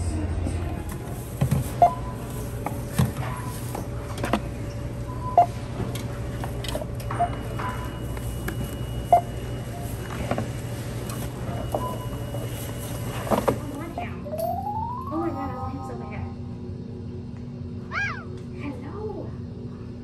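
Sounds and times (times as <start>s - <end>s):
low store hum: 0.0s - 20.0s
barcode scanner beeps: 1.7s - 2.3s, 7.2s - 10.1s, 11.4s - 13.0s.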